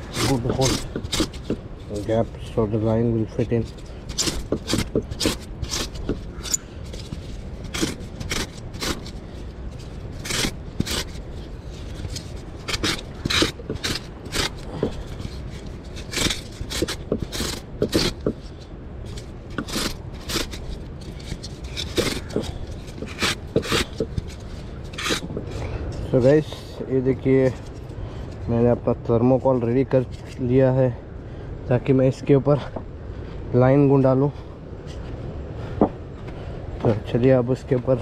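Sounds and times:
polystyrene foam being scraped: 0.0s - 2.2s, 4.1s - 9.2s, 9.8s - 18.4s, 19.1s - 25.3s.

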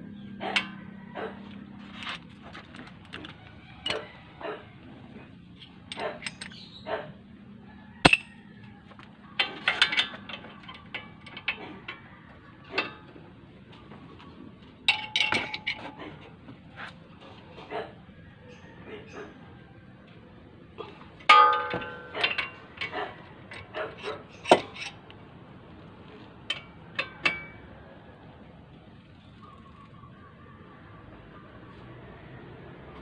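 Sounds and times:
metal tools clinking on bolts: 0.4s - 1.0s, 1.6s - 4.2s, 5.5s - 6.8s, 8.0s - 13.9s, 14.8s - 16.4s, 21.2s - 25.2s, 26.1s - 27.8s.

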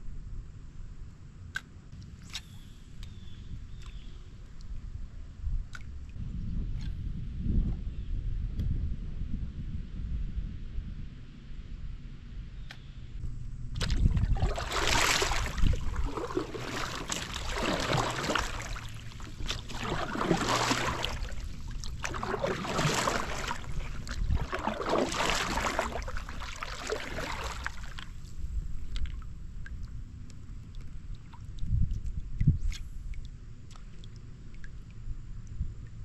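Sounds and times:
soft water sounds: 1.5s - 8.6s, 12.7s - 36.0s
kayak paddle splashing: 13.8s - 29.8s.

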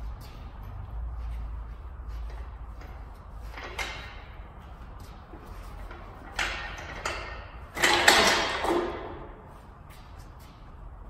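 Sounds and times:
metallic knocks and creaks: 2.2s - 9.4s.

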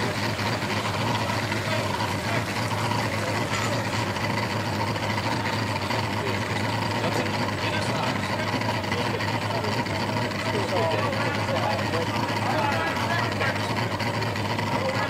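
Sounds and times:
faint voices: 0.0s - 15.0s
truck engines idling: 0.0s - 15.0s.

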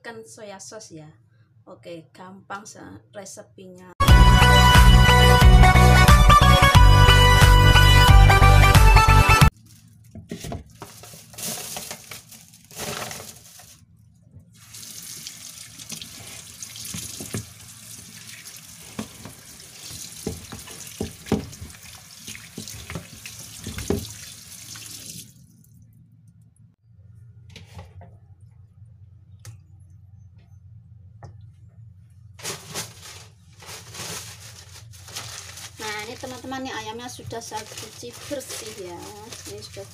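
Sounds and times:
tap running into metal sink: 16.8s - 17.5s, 19.0s - 24.3s.

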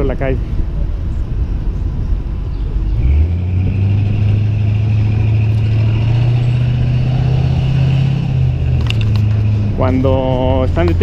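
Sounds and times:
truck engine running: 2.8s - 11.0s.

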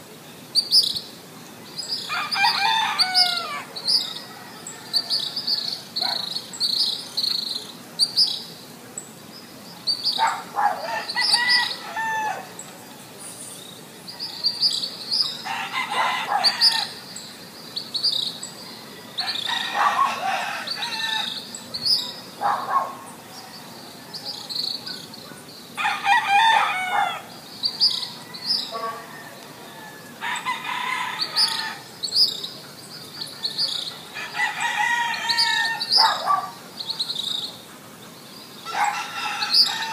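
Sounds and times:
small birds chirping: 0.0s - 39.9s
rooster crowing: 2.1s - 5.8s, 10.6s - 12.5s, 15.4s - 17.0s, 18.6s - 21.4s, 25.8s - 31.9s, 34.1s - 36.5s, 38.6s - 39.9s.

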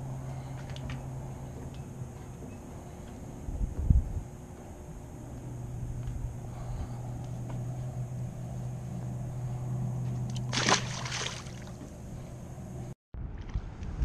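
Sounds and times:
steady low hum: 0.0s - 14.0s
fish splashing into water: 10.3s - 11.8s.

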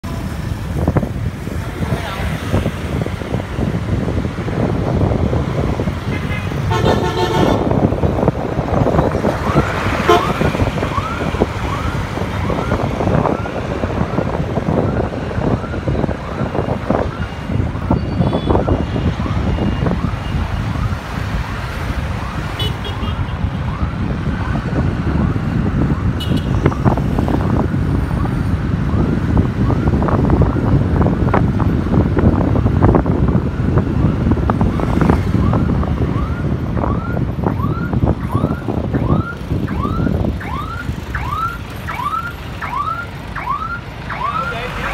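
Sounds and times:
motorbikes and scooters passing: 0.0s - 14.1s
vehicle horn: 6.1s - 7.7s, 10.0s - 10.4s, 26.2s - 26.6s.

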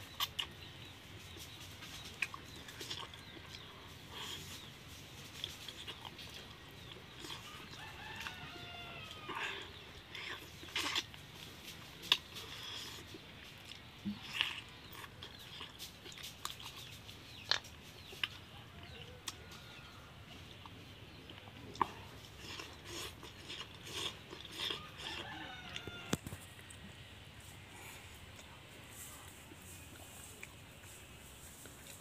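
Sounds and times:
chewing and lip-smacking: 0.0s - 8.4s, 9.2s - 19.4s, 20.5s - 26.9s.

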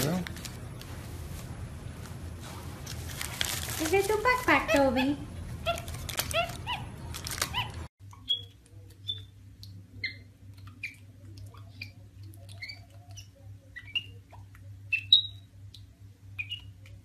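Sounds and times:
paper crinkling: 0.0s - 4.9s, 5.5s - 7.9s
low steady hum: 0.0s - 17.0s
monkey squeaky chirps: 4.6s - 9.3s, 10.0s - 15.5s, 16.3s - 16.8s.

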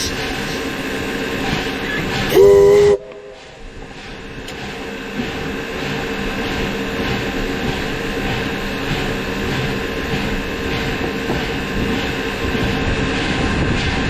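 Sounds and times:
steam locomotive mechanical noise: 0.0s - 14.0s
steam whistle blast: 2.3s - 3.4s.

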